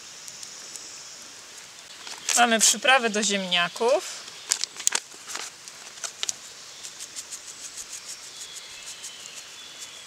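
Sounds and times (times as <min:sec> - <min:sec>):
paper packet rustling: 0:04.5 - 0:06.4
seasoning shaking from packet: 0:06.9 - 0:10.0.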